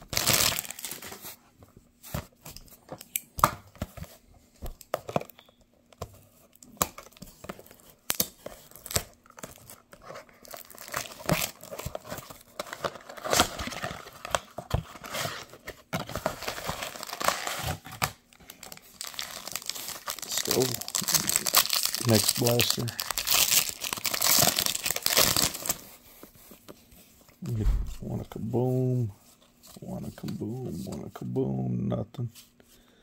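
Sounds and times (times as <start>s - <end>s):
foil packs crinkling and tearing: 0.0s - 1.2s, 6.7s - 25.9s.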